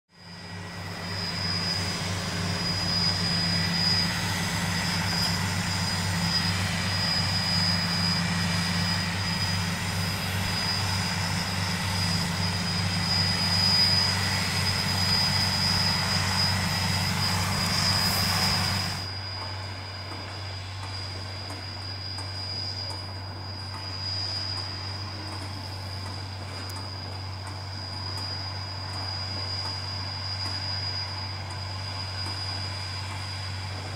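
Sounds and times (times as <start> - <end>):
high whine: 0.1 - 33.9
tractor diesel engine running: 0.2 - 19.6.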